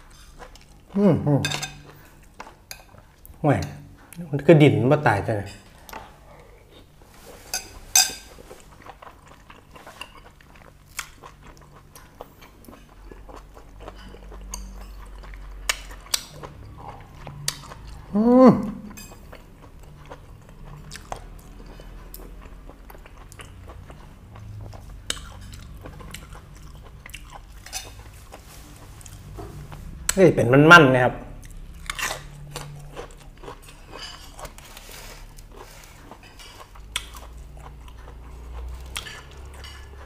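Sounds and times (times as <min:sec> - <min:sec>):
chewing and mouth clicks: 0:08.4 - 0:18.1, 0:18.9 - 0:30.2, 0:31.4 - 0:40.0
short vocal sound: 0:18.1 - 0:18.9.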